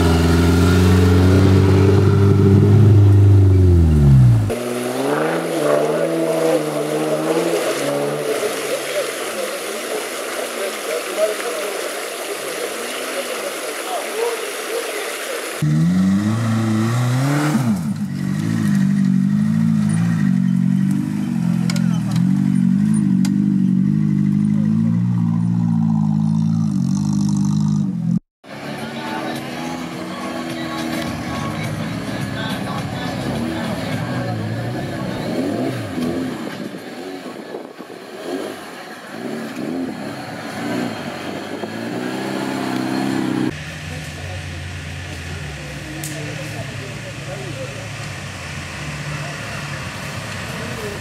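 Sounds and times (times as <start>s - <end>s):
engine running under load: 15.6s - 51.0s.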